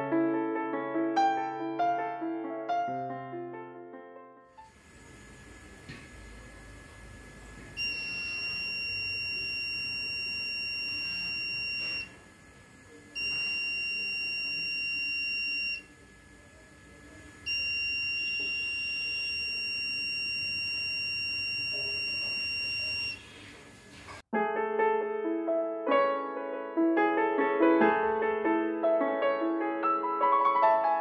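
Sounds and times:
buzzer high-pitched tone: 0:04.6 - 0:23.6.

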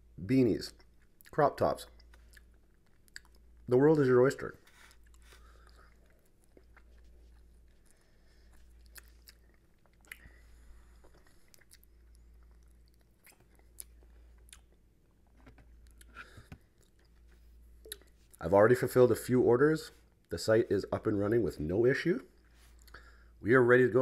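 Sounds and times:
chewing and wet mouth clicks: 0:00.7 - 0:03.6, 0:04.9 - 0:14.8, 0:17.8 - 0:18.2.

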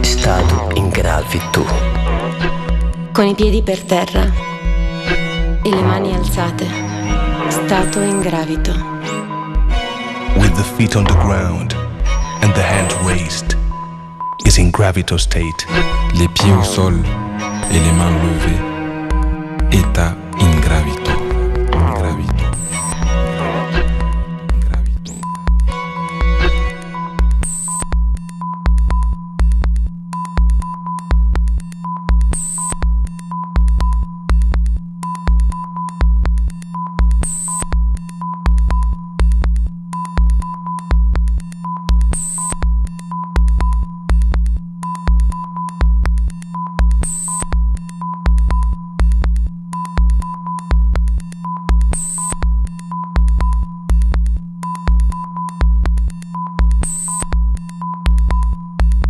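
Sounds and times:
low electronic drone: 0:00.0 - 0:59.0
pulsing low beat: 0:00.0 - 0:59.0
short repeated beeps: 0:31.6 - 0:33.4, 0:41.5 - 0:43.3, 0:51.2 - 0:53.6.

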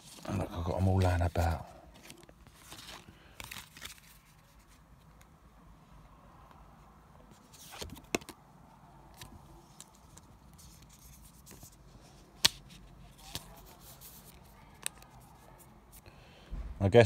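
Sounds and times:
cards rustling: 0:00.0 - 0:05.3, 0:07.3 - 0:08.4, 0:09.1 - 0:16.1.

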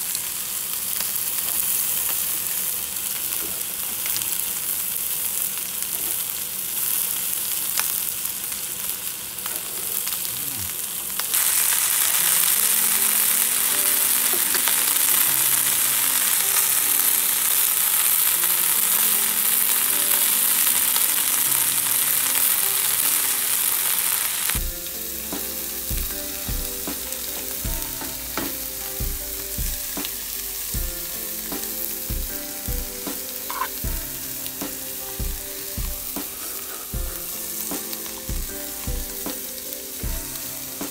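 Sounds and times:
steak sizzling on a barbecue: 0:00.0 - 0:40.9.

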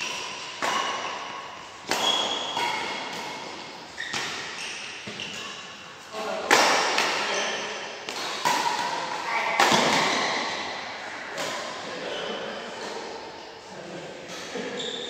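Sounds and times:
rackets hitting shuttlecock: 0:00.0 - 0:05.6, 0:06.3 - 0:11.8.

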